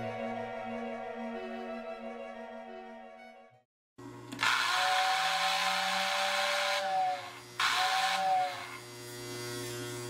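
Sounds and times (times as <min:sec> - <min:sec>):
toy train air whistle hooting: 0:04.6 - 0:08.7.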